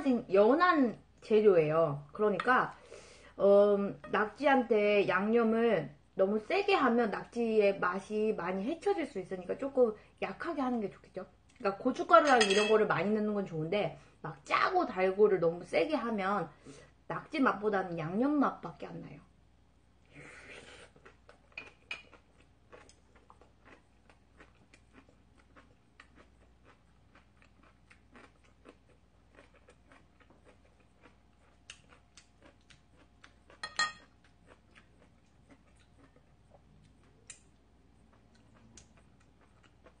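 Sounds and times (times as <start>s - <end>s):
faint chewing: 20.5s - 40.0s.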